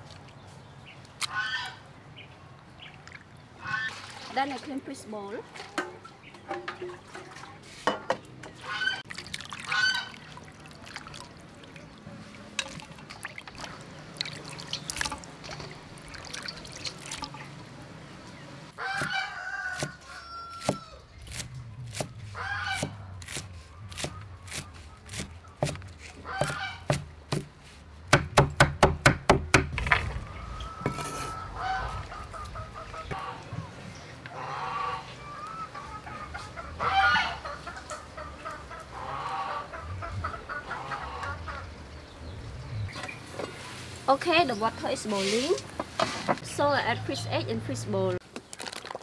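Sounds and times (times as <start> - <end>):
fowl honking: 8.6 - 9.1, 30.2 - 33.7, 34.3 - 41.7
water splashing in metal bowl: 9.0 - 17.6.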